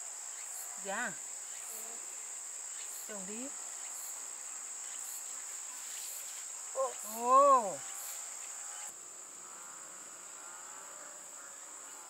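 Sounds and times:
insects chirring: 0.0s - 12.0s
person calling: 6.8s - 7.8s.

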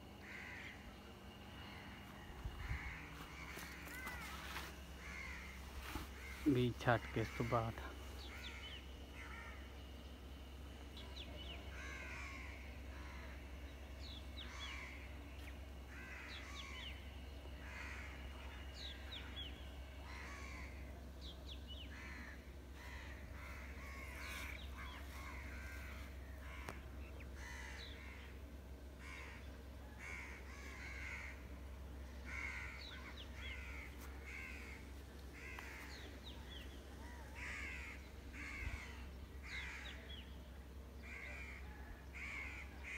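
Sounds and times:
faint low rumble: 0.0s - 6.4s
crows cawing: 0.1s - 42.9s.

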